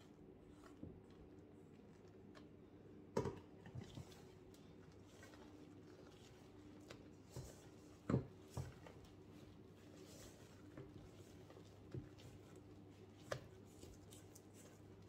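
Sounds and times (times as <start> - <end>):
spatula scraping batter: 3.6 - 15.0.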